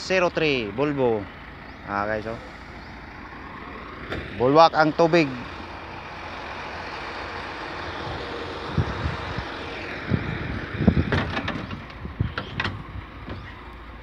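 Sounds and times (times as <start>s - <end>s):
excavator diesel engine running: 0.0s - 14.0s
low knocks and thumps: 10.2s - 13.6s.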